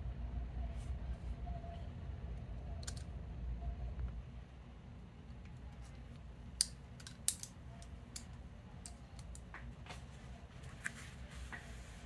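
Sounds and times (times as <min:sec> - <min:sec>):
butterfly knife metal clicks: 0:06.6 - 0:09.4.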